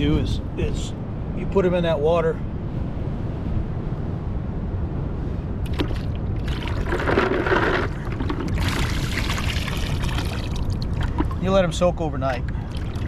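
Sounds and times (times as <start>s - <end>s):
water splashing into bucket: 5.7s - 11.5s, 12.5s - 13.0s
water sloshing: 5.7s - 13.0s.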